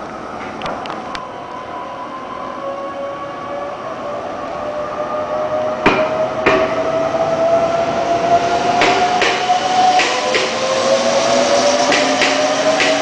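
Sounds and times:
electric train motor whine: 2.6s - 13.0s
wheels clacking over rail joint: 5.8s - 7.0s, 8.8s - 10.8s, 11.9s - 13.0s.

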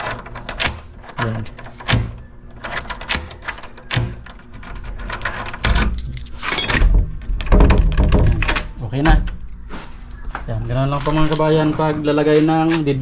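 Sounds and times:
door lock clicking and rattling: 0.0s - 9.6s.

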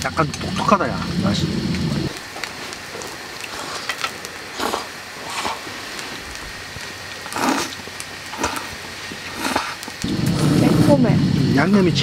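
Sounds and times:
people slurping noodles: 3.5s - 3.9s, 4.5s - 5.7s, 7.3s - 8.7s, 9.3s - 10.9s.

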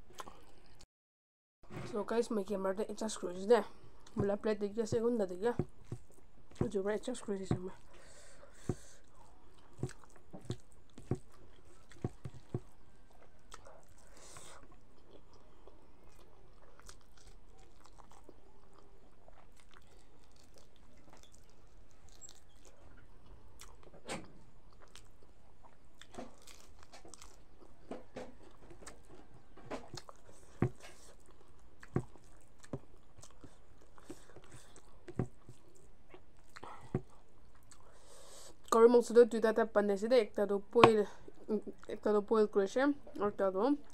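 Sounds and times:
person chewing and crunching food: 0.0s - 0.8s, 5.6s - 6.7s, 7.5s - 38.8s.

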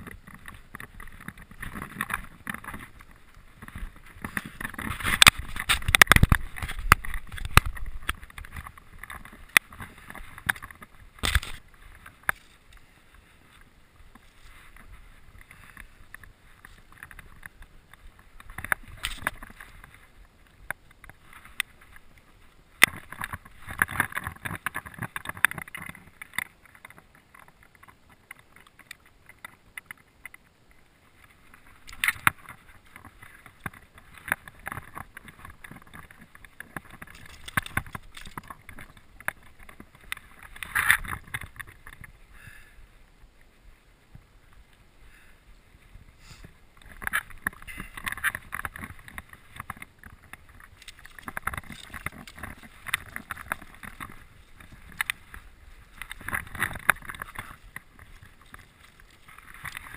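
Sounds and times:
handling clicks and knocks: 31.8s - 42.1s, 46.8s - 59.9s.

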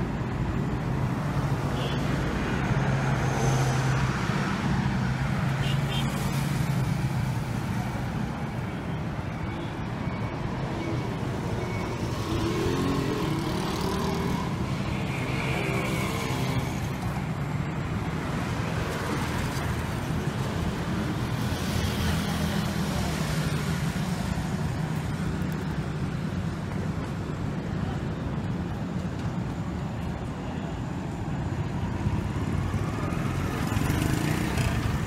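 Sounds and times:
cars passing: 0.0s - 35.0s
motorcycles passing: 11.3s - 30.6s, 31.6s - 35.0s.

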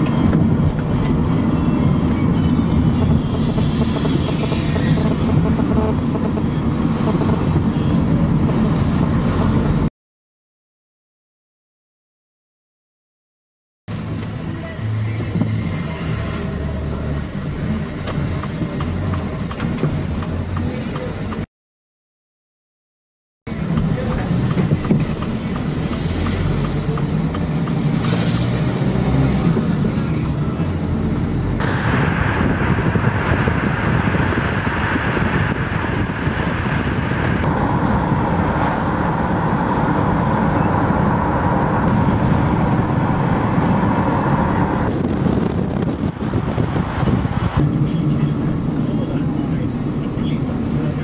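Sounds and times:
van engine and road rumble: 0.0s - 9.9s, 13.9s - 21.5s, 23.5s - 51.0s.

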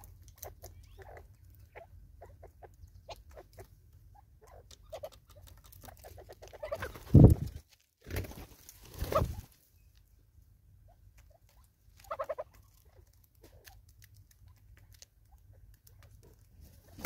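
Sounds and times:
birds clucking: 0.0s - 9.5s, 11.2s - 13.6s.

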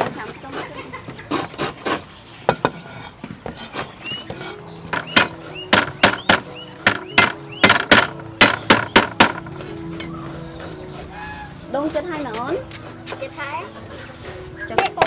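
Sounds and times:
knife knocking on wooden board: 4.8s - 9.5s.

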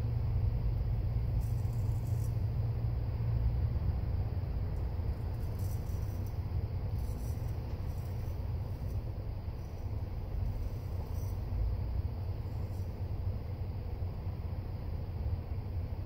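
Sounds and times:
steady low rumble: 0.0s - 16.0s
razor scraping stubble: 5.2s - 11.4s.

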